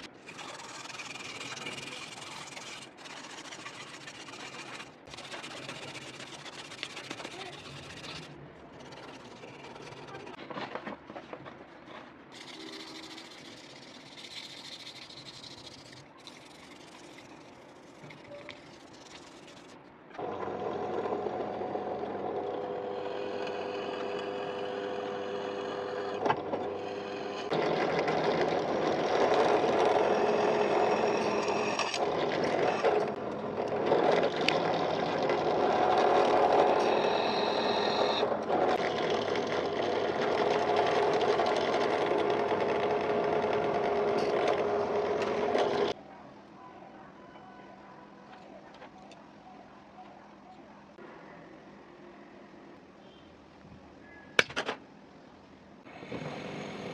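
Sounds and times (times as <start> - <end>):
sandpaper rubbing on wood: 0.0 - 10.4, 12.3 - 19.8
drill press motor whine: 20.2 - 45.9.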